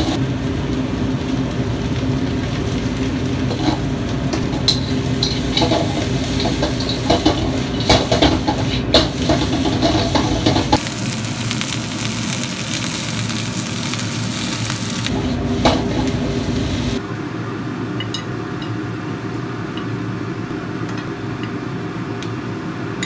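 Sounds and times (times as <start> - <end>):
food sizzling: 0.0 - 17.0
low burner rumble: 0.0 - 23.0.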